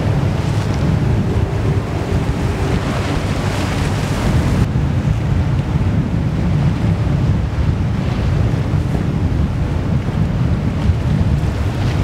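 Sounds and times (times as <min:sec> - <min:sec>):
heavy low rumble: 0:00.0 - 0:06.6
water washing along hull: 0:00.0 - 0:12.0
wind buffeting microphone: 0:00.0 - 0:12.0.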